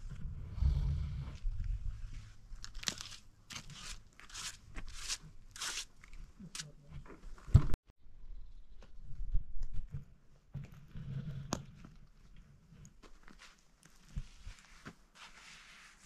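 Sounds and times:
trowel scraping wet cement: 0:02.9 - 0:06.7.

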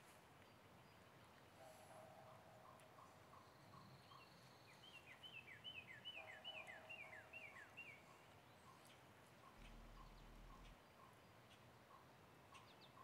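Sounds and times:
lower bird warbling: 0:09.4 - 0:10.8.

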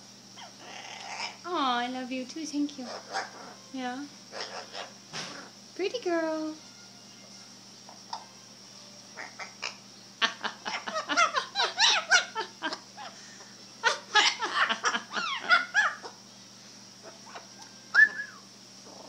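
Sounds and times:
parrot chirps and squawks: 0:00.4 - 0:01.5, 0:02.8 - 0:03.6, 0:04.3 - 0:05.5, 0:09.2 - 0:13.2, 0:13.8 - 0:16.2, 0:17.0 - 0:18.0
parrot rising and falling whistle: 0:17.9 - 0:18.5.

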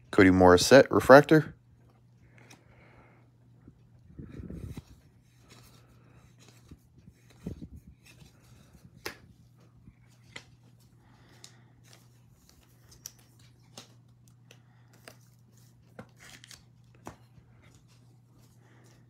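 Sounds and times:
low steady hum: 0:00.0 - 0:19.0
foil packs crinkling: 0:12.2 - 0:17.1.

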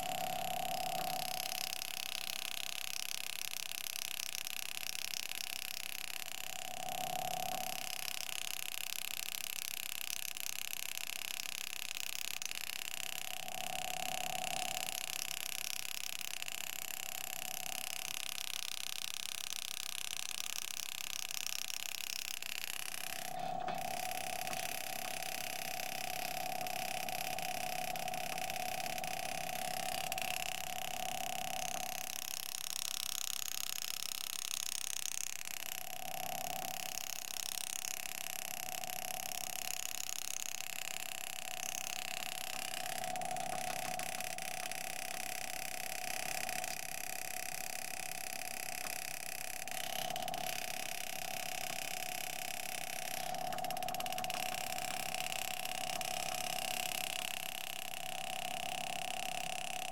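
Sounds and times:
engraving handpiece humming: 0:12.1 - 0:59.9.

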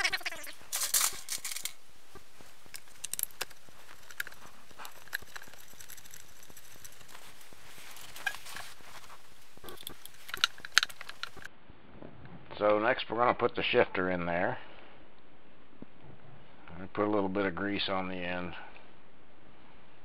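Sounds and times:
steady hiss: 0:00.0 - 0:11.5
small metal clicks and taps: 0:02.7 - 0:07.2, 0:09.6 - 0:11.5.

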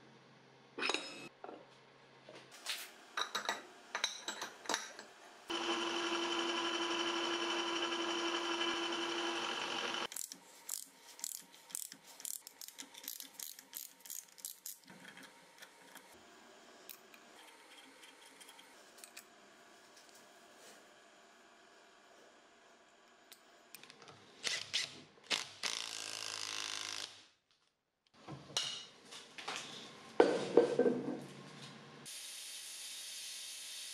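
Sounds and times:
small power tool motor: 0:05.5 - 0:10.1, 0:25.6 - 0:27.1.

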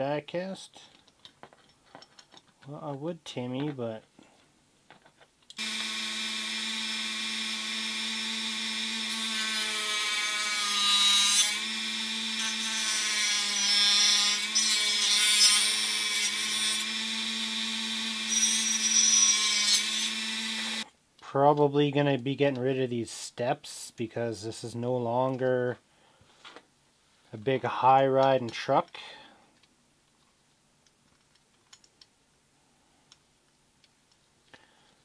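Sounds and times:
cut-off disc grinding: 0:05.6 - 0:20.8
rotary tool whining: 0:05.6 - 0:20.8.

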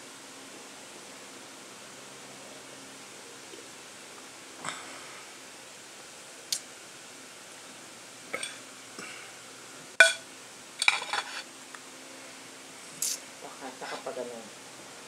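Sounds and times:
mug clinking on ceramic plate: 0:10.0 - 0:10.2.

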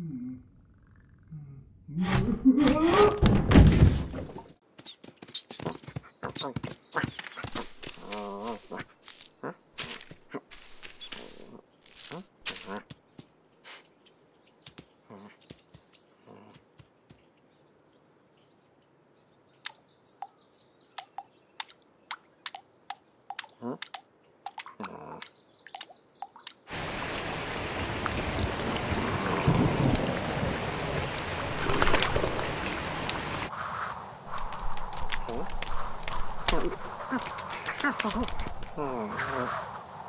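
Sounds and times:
quiet birdsong: 0:04.4 - 0:31.4
heavy rain downpour: 0:26.7 - 0:33.5.

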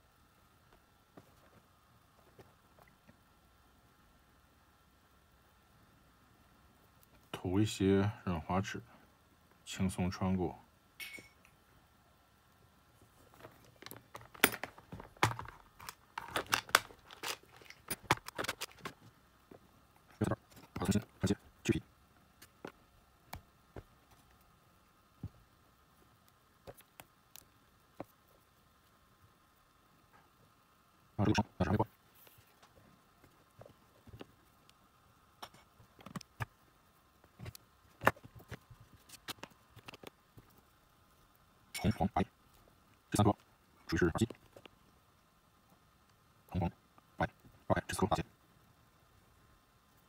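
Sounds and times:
cable and small parts handled: 0:13.2 - 0:21.1, 0:37.3 - 0:40.7.

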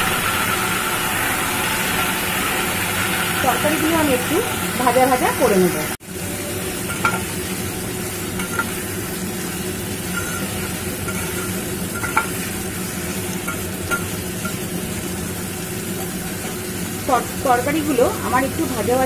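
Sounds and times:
vegetables sizzling in oil: 0:00.0 - 0:19.0
metal spatula scraping pot: 0:08.4 - 0:08.8, 0:10.0 - 0:12.4.

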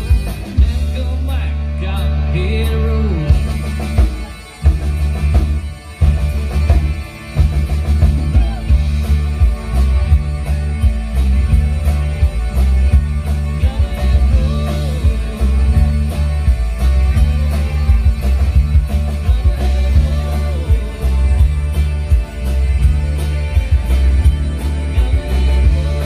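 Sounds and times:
drum kit steady beat: 0:00.0 - 0:26.0
live country-rock band: 0:00.0 - 0:26.0
person singing: 0:00.4 - 0:04.7, 0:12.6 - 0:26.0.

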